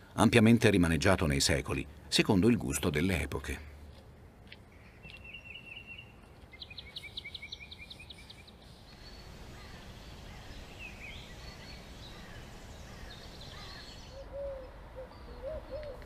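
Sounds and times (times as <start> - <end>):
steady background noise: 0.0 - 16.0
small bird singing: 4.8 - 16.0.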